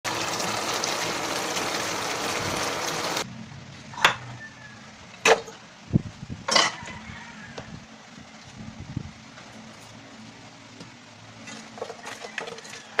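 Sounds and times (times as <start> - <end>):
pan sizzling: 0.0 - 3.2.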